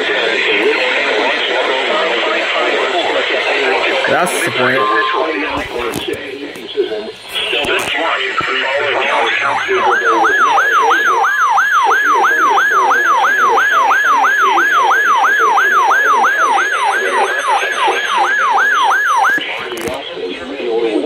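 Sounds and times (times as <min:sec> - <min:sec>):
faint broadcast speech: 0:00.0 - 0:21.0
weather radio siren alarm: 0:00.6 - 0:06.0, 0:07.3 - 0:20.0
radio click: 0:05.5 - 0:08.7, 0:19.4 - 0:20.0.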